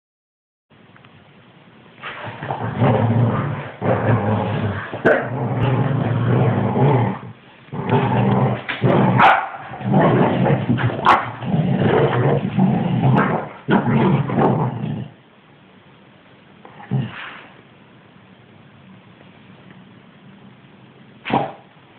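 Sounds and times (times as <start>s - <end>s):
dogs growling and snarling: 2.1s - 15.2s, 16.7s - 17.6s.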